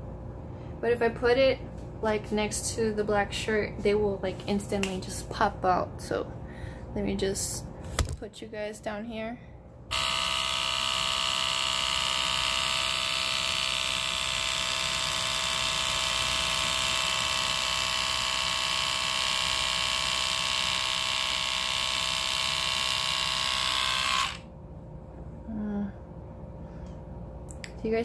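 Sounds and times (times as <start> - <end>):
electric hair trimmer motor whining: 9.9 - 24.5.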